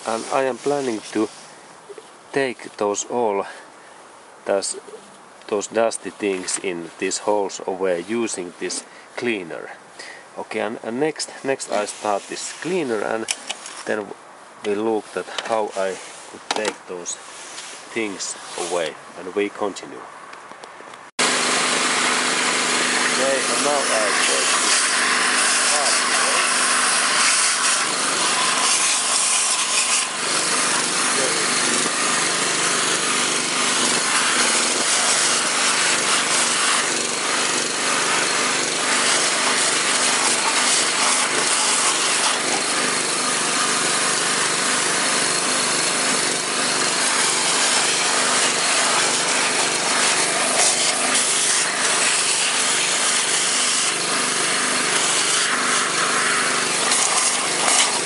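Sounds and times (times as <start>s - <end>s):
vacuum cleaner running: 21.2s - 58.0s.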